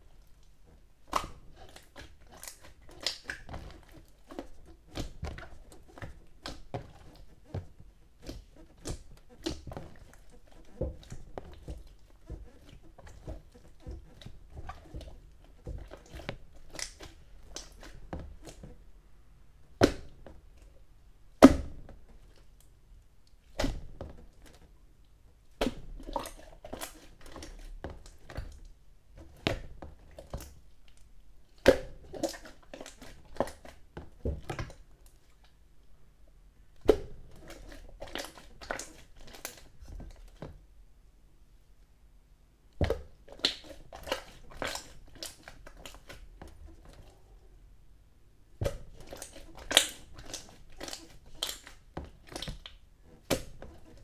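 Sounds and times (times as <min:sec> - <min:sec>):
hands squishing wet slime: 0:01.0 - 0:19.0, 0:19.8 - 0:20.7, 0:25.5 - 0:35.6, 0:36.8 - 0:40.4, 0:42.7 - 0:47.4, 0:48.5 - 0:54.0.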